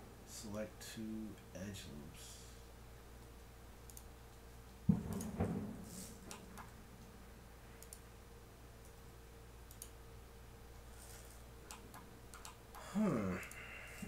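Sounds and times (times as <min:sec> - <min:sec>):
faint steady hum: 0:00.0 - 0:14.0
keyboard and mouse clicks: 0:03.8 - 0:04.1, 0:06.3 - 0:06.7, 0:07.8 - 0:08.0, 0:09.7 - 0:10.0, 0:11.7 - 0:12.8
low thump: 0:04.9 - 0:06.0.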